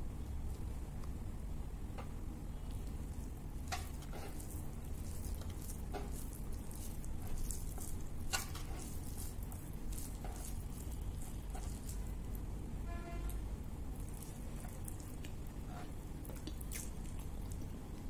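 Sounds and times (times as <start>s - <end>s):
steady low hum: 0.0s - 18.0s
wet squishing of food: 2.4s - 12.7s, 13.3s - 18.0s.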